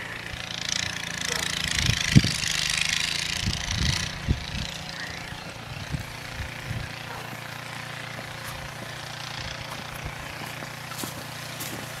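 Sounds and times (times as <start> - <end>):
low engine drone: 0.0 - 12.0
snow shovel scraping snow: 7.0 - 12.0.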